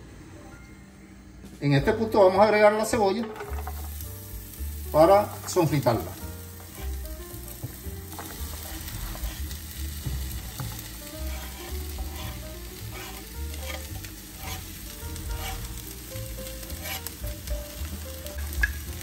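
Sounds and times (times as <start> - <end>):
onion sizzling in oil: 2.9 - 19.0
stirring scrapes in pan: 5.0 - 15.9, 16.5 - 17.2.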